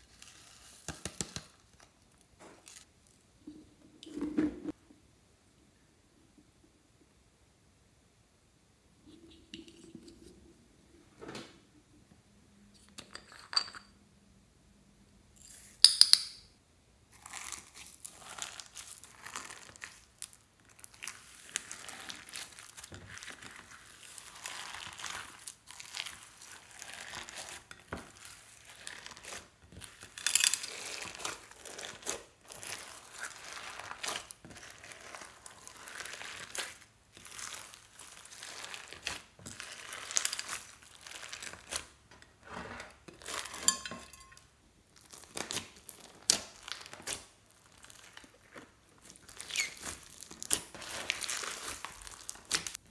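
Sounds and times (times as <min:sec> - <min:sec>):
beads clicking against glass: 0:15.4 - 0:16.5
sticky slime crackling: 0:17.1 - 0:42.0, 0:44.9 - 0:52.9.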